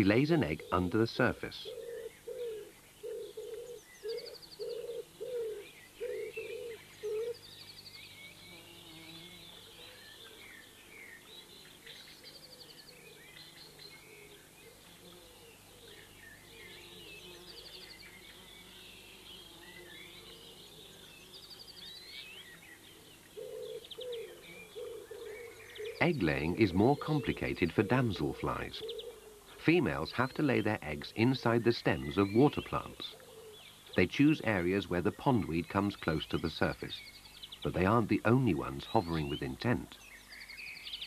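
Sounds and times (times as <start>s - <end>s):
pigeon cooing: 0.0s - 7.4s, 23.0s - 30.5s, 32.6s - 34.6s
small birds chirping: 0.0s - 41.0s.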